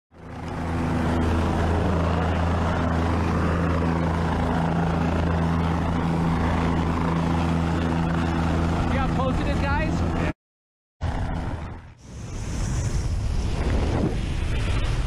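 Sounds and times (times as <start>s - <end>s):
helicopter rotor drone: 0.1s - 10.4s, 11.0s - 15.0s
broad rushing noise: 0.2s - 10.4s, 11.0s - 15.0s.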